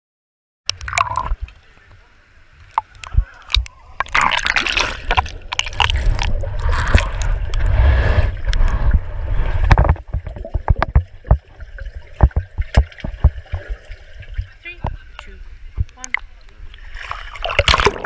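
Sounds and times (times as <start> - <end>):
muffled underwater clicks and pops: 0.7 - 2.0, 2.6 - 7.8, 8.4 - 8.9, 9.6 - 13.7, 14.3 - 16.8
water sloshing and bubbling: 0.7 - 18.0
low rumble: 3.1 - 18.0.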